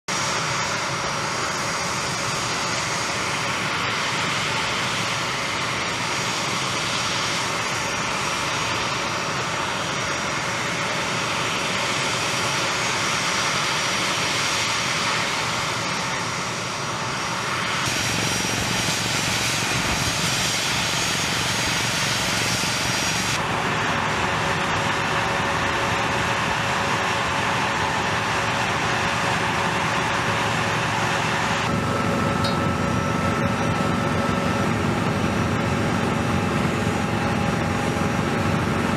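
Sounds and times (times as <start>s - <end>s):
jet engines running: 0.1s - 38.9s
high whine: 14.9s - 38.9s.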